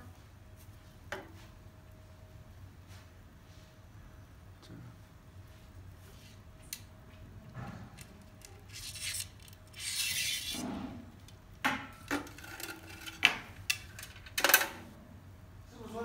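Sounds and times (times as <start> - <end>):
metal bars rubbing and scraping: 8.4 - 11.3.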